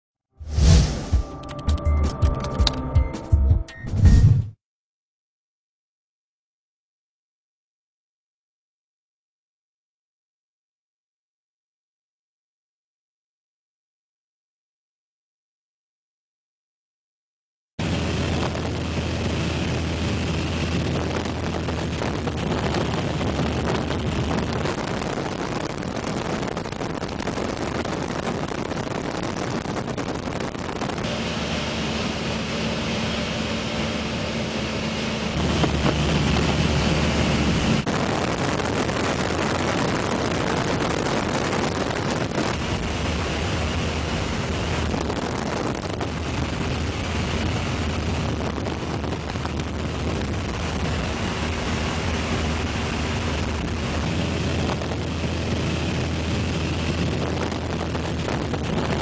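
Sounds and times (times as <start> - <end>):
aircraft engine drone and wind: 17.8 - 59.0.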